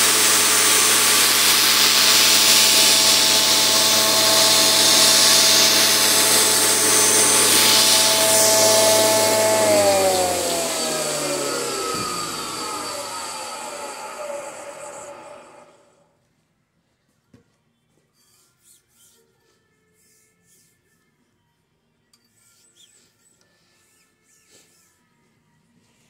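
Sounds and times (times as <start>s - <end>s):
angle grinder wire brush scratching: 0.0s - 15.2s
machine spinning down: 0.0s - 16.0s.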